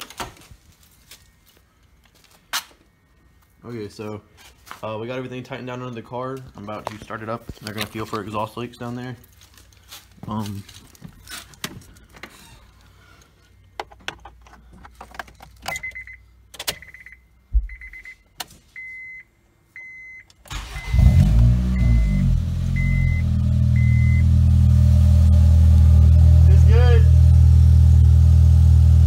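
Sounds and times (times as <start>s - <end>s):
clicks and handling noises: 6.4s - 8.3s
car warning chime beeping: 15.7s - 16.2s, 16.8s - 24.4s
car engine starting and running: 20.3s - 29.0s.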